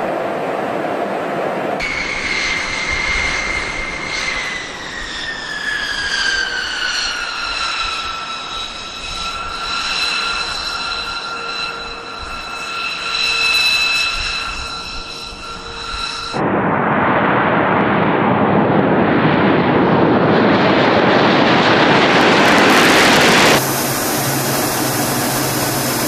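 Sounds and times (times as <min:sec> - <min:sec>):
jet engines whining: 0:00.0 - 0:26.0.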